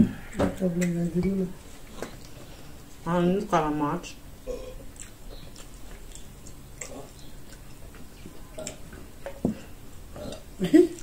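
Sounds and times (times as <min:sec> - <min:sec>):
chewing smacks and clicks: 0:04.9 - 0:09.4.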